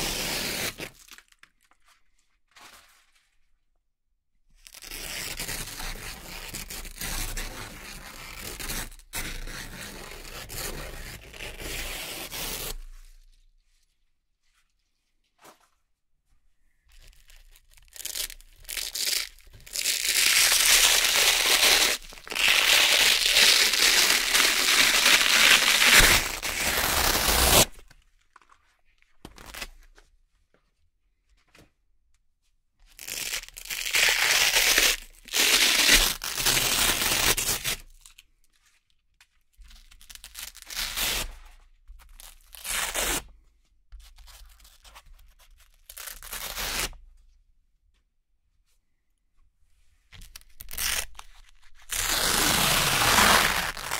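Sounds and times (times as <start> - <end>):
velcro strips ripping apart: 0.0 - 1.4, 17.2 - 27.8, 33.0 - 38.0, 40.0 - 41.4, 45.8 - 46.9, 50.2 - 53.9.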